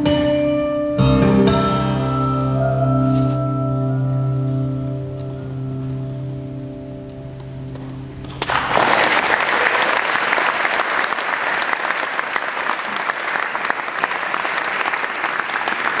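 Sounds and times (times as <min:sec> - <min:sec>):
acoustic guitar chord ringing: 0:00.0 - 0:08.2
audience applause: 0:08.4 - 0:16.0.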